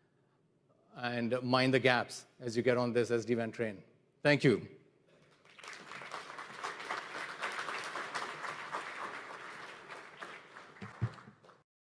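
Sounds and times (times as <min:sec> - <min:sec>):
audience applauding: 0:05.2 - 0:11.6.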